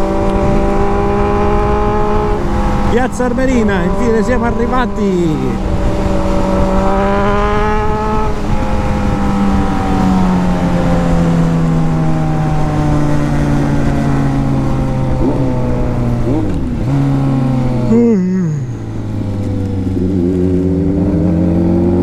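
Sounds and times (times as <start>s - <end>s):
wind noise: 0.0s - 17.0s
motorcycle engine running: 0.0s - 22.0s.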